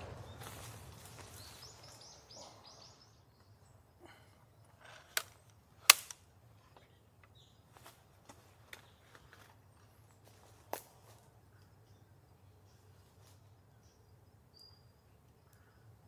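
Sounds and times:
faint outdoor ambience: 0:00.0 - 0:16.0.

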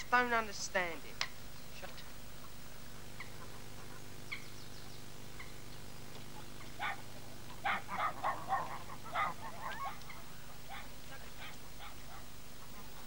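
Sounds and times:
steady low hum: 0:00.0 - 0:13.0
small bird chirps: 0:04.3 - 0:06.8
waterfowl honking: 0:05.4 - 0:13.0.

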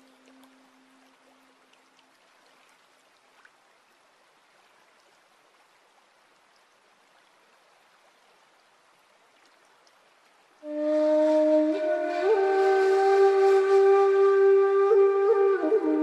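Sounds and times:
tiny water drips: 0:00.0 - 0:10.8
stream trickling over stones: 0:00.0 - 0:16.0
low held musical note: 0:10.6 - 0:16.0.

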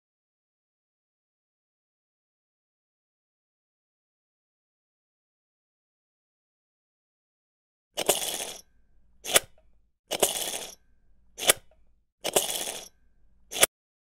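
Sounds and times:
sharp click: 0:09.2 - 0:10.8, 0:11.4 - 0:13.7.

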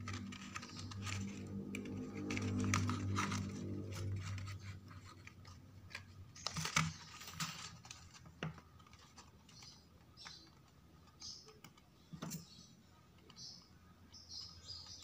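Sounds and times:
low background drone: 0:00.0 - 0:06.0
cardstock rustling and crinkling: 0:00.0 - 0:11.4
sharp paper clicks: 0:00.0 - 0:12.5.

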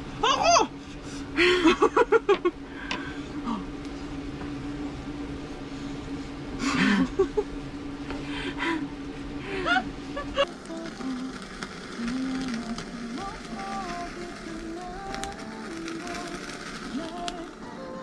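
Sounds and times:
low hum: 0:00.0 - 0:18.0
women giggling: 0:01.5 - 0:02.5, 0:06.7 - 0:07.5.

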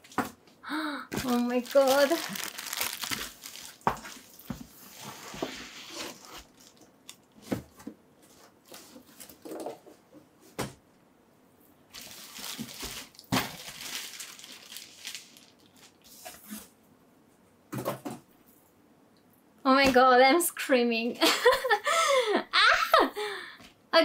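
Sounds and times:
packing material crinkling: 0:01.2 - 0:07.4, 0:11.9 - 0:16.7.

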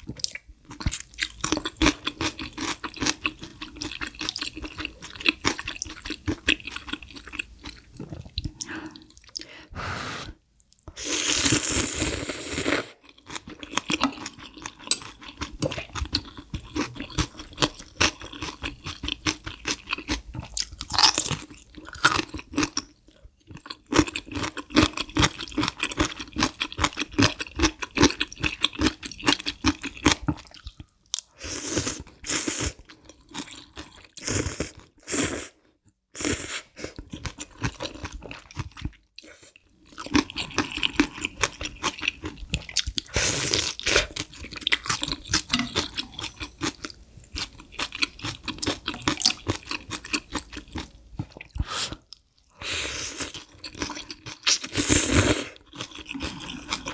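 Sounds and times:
slurping noodles: 0:09.8 - 0:13.0, 0:54.5 - 0:56.9.

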